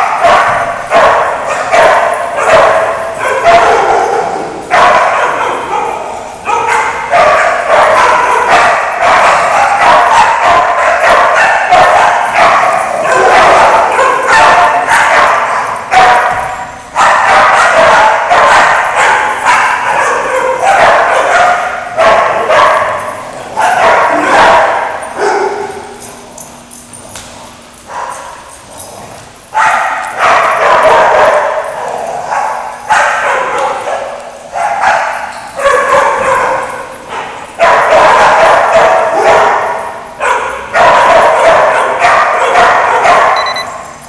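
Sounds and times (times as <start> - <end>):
dogs barking and yipping: 0.0 - 44.0.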